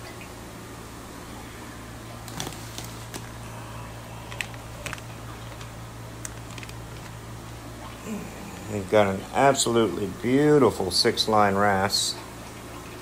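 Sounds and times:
steady low hum: 0.0s - 13.0s
plastic bags crinkling: 2.2s - 7.4s.

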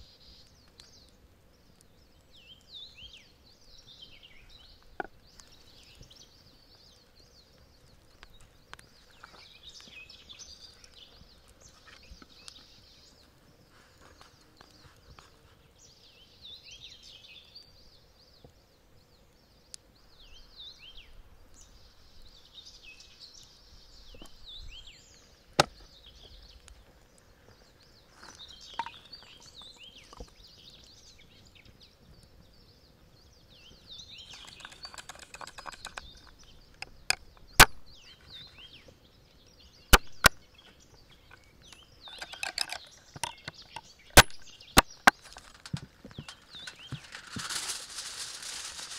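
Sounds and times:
small birds chirping: 0.0s - 48.9s
rattling or rustling: 34.3s - 36.3s, 42.0s - 43.8s, 45.0s - 48.9s.

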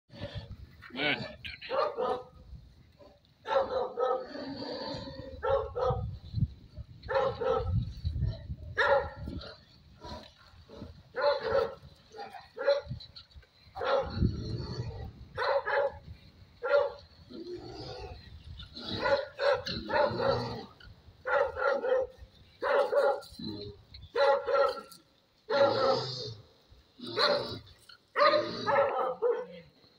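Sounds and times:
dog barking: 1.7s - 2.3s, 3.4s - 4.3s, 5.4s - 6.1s, 7.1s - 7.8s, 8.8s - 9.3s, 11.2s - 12.9s, 13.8s - 14.2s, 15.4s - 16.0s, 16.6s - 17.0s, 18.9s - 20.4s, 21.2s - 23.3s, 24.1s - 24.9s, 25.5s - 26.0s, 27.2s - 27.5s, 28.2s - 29.7s.

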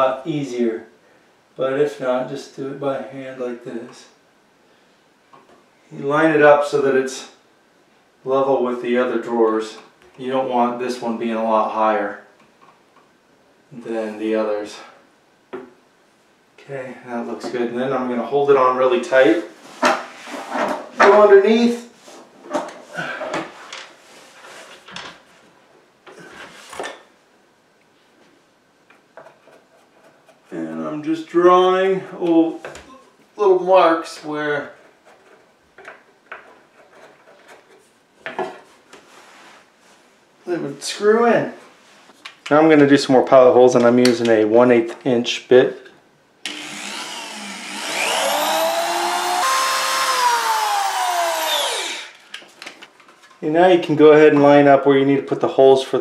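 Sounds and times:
power drill whining through wood: 46.4s - 52.2s.

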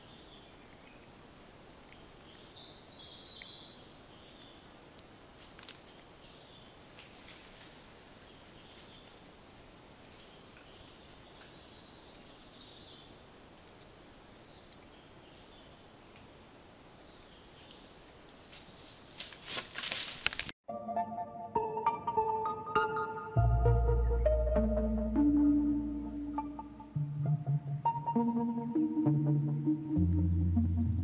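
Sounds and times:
faint steady hiss: 0.0s - 20.5s
rustling in dry leaves: 4.5s - 13.8s, 17.3s - 20.6s.

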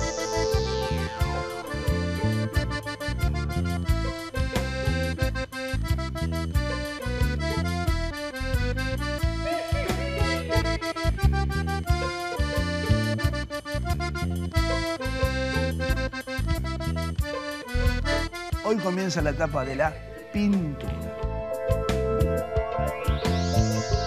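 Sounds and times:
upbeat theme music: 0.0s - 24.0s.

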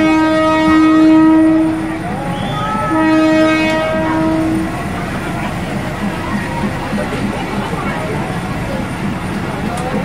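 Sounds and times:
train horn blasts: 0.0s - 4.9s.

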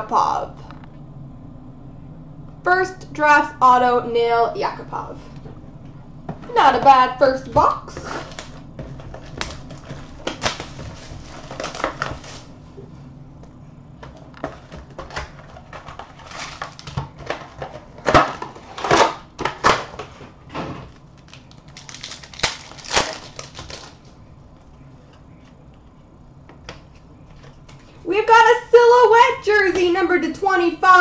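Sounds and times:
cardboard and wrapper crinkling and ripping: 8.0s - 12.5s, 14.4s - 20.1s, 20.9s - 24.1s.

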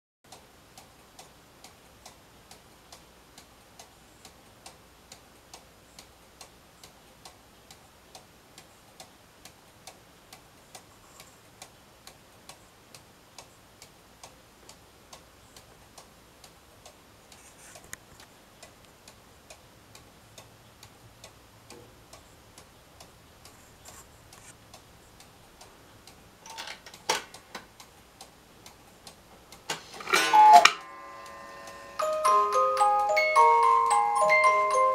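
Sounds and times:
clicks and scrapes of clock hands: 17.3s - 18.0s, 23.5s - 24.6s, 29.7s - 30.6s
clock ticking: 18.6s - 34.9s.

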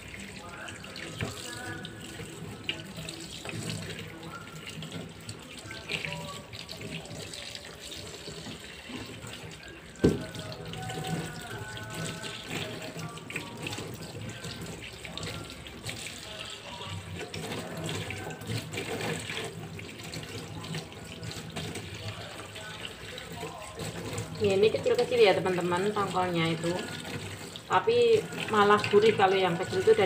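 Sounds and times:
fish being rinsed by hand: 0.0s - 30.0s
tap water running into a steel sink: 0.0s - 30.0s.

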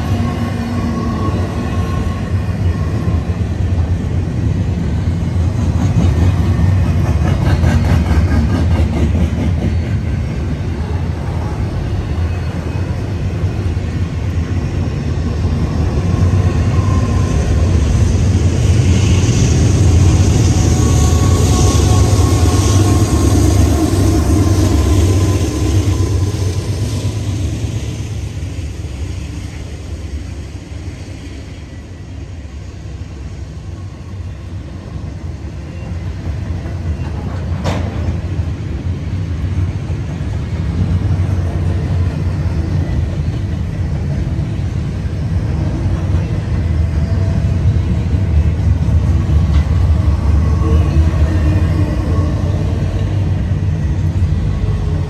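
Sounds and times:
train wheels rumbling on rails: 0.0s - 55.0s
faint high squeal: 20.4s - 26.5s.

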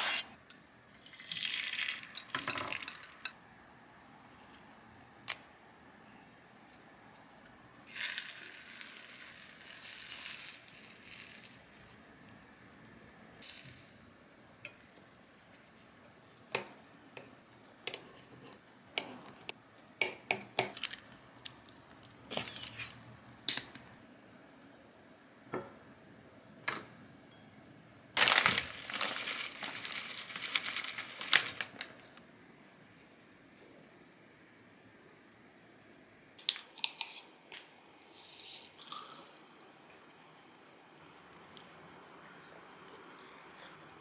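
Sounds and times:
egg sizzling in a pan: 7.9s - 11.5s.

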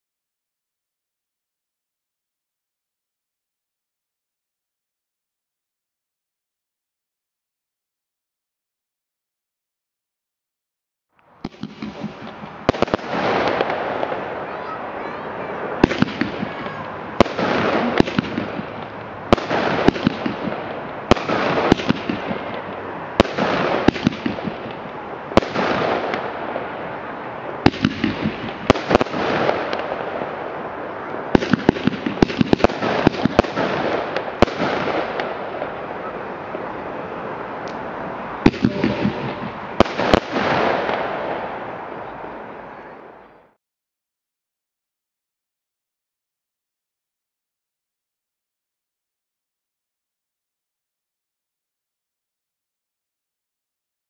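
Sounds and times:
hissing crackle of fireworks: 11.3s - 43.6s
firework bangs: 11.4s - 42.4s.

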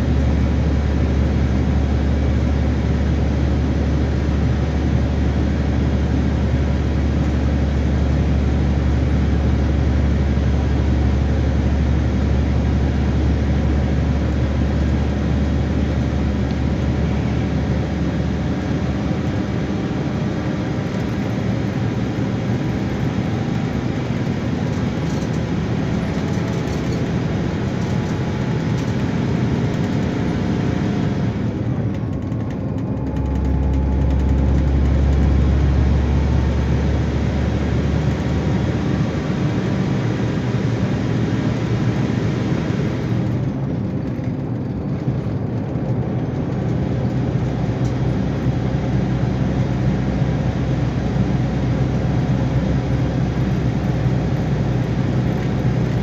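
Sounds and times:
diesel engine drone: 0.0s - 56.0s
tyre and road noise: 6.0s - 40.8s.

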